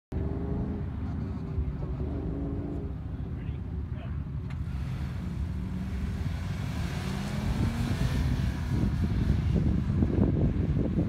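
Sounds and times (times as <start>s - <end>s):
car engine revving: 0.1s - 3.4s, 4.4s - 10.4s
wind gusts on microphone: 4.9s - 11.0s.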